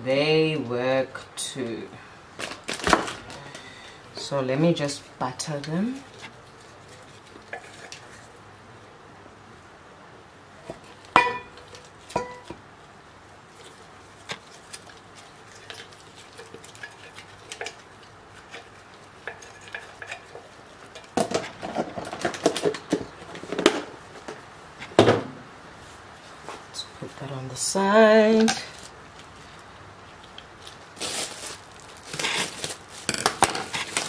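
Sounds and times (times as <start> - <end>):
dishes and utensil clinking: 11.1 - 12.6.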